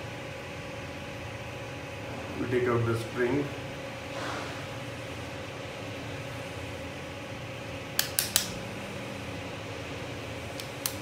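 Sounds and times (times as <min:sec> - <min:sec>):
fan hum: 0:00.0 - 0:11.0
sharp metal clicks: 0:08.0 - 0:08.5.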